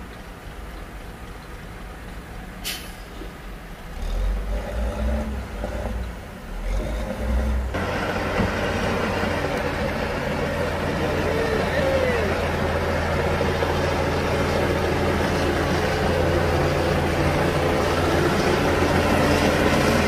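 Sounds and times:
diesel engine rumble: 0:00.0 - 0:20.0
short sharp hiss: 0:02.6 - 0:03.3.

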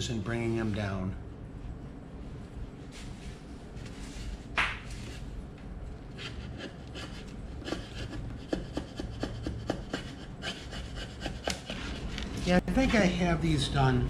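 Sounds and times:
chisel scraping wood: 0:06.2 - 0:12.2.

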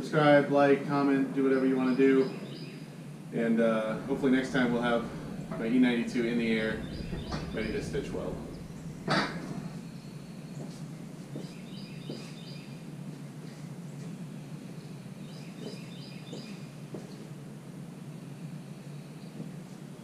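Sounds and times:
steady low hum: 0:00.0 - 0:15.3
bird chirping: 0:03.8 - 0:13.0.

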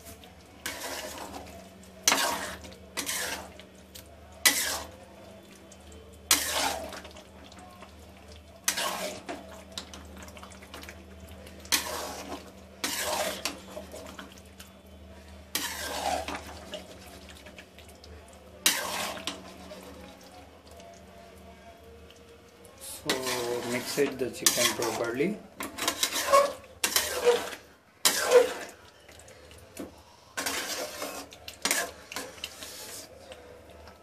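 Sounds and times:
spatula scraping metal pot: 0:00.6 - 0:03.6, 0:04.4 - 0:05.0, 0:06.3 - 0:07.1, 0:08.6 - 0:09.4, 0:11.7 - 0:14.0, 0:15.5 - 0:17.0, 0:18.6 - 0:19.8, 0:23.0 - 0:28.8, 0:30.4 - 0:33.1.

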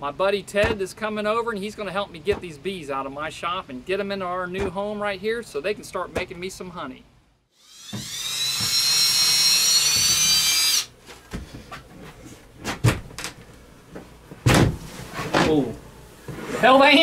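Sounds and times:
power drill whining: 0:07.6 - 0:10.9.

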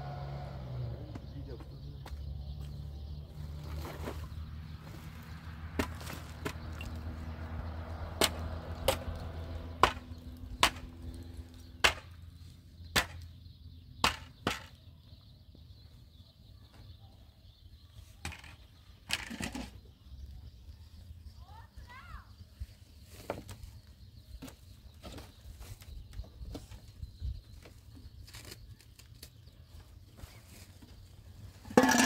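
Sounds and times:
tool striking wood: 0:08.2 - 0:09.2, 0:09.8 - 0:11.0, 0:11.8 - 0:12.2, 0:12.9 - 0:13.3, 0:14.0 - 0:14.7.

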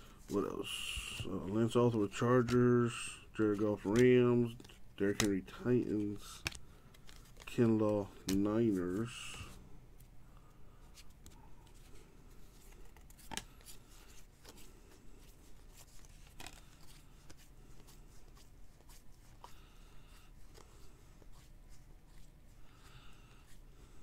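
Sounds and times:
low steady hum: 0:00.0 - 0:24.0
trading cards being flipped: 0:01.0 - 0:02.6, 0:03.5 - 0:10.1, 0:10.9 - 0:19.6.

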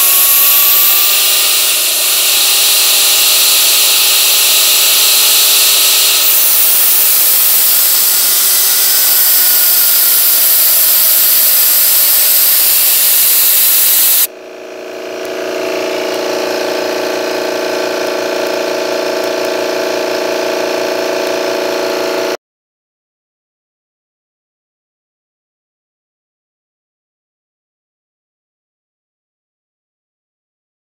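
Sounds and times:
jet engine rushing and whining: 0:00.0 - 0:14.3.

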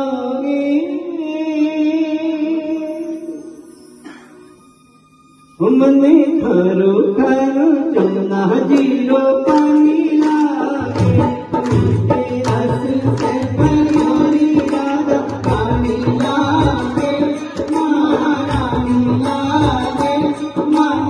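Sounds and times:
man singing devotional song: 0:00.0 - 0:03.9, 0:05.6 - 0:21.0
harmonium: 0:05.6 - 0:21.0
hand drum beat: 0:09.5 - 0:21.0.

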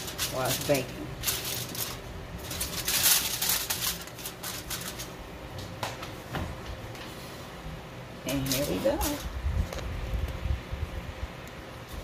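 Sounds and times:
aluminum foil crinkling: 0:00.0 - 0:05.8, 0:08.3 - 0:09.9.

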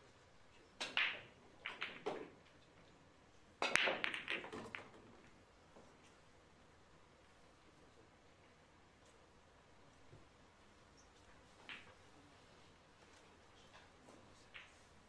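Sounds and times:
cue striking ball sharp crack: 0:00.8 - 0:02.4, 0:03.6 - 0:05.0
billiard balls clacking: 0:00.8 - 0:02.6, 0:03.6 - 0:05.4, 0:11.6 - 0:12.0, 0:14.5 - 0:14.8.

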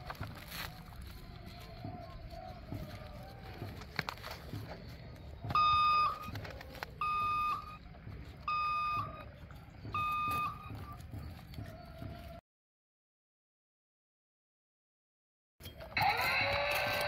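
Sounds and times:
toy electronic beeps: 0:05.5 - 0:06.3, 0:06.9 - 0:09.3, 0:09.9 - 0:11.0.

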